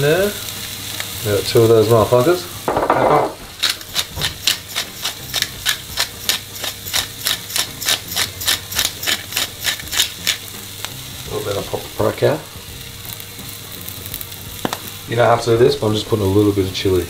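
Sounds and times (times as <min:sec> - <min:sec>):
onions sizzling in a pan: 0:00.0 - 0:17.0
pepper grinder crunching clicks: 0:03.5 - 0:11.0.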